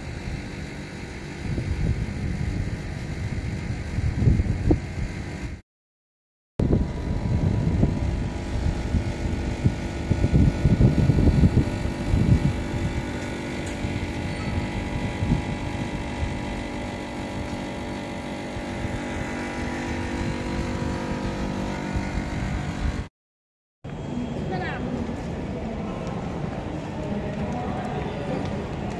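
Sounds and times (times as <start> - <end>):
distant traffic and machinery hum: 0.0 - 5.6, 6.6 - 23.1, 23.9 - 28.9
uneven low rumbling: 6.6 - 23.1.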